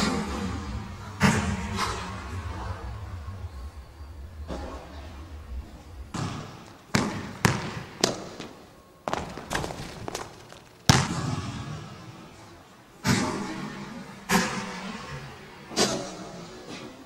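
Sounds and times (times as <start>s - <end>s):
ball striking hoop: 6.2s - 11.5s
basketball bouncing on wooden floor: 6.9s - 11.4s.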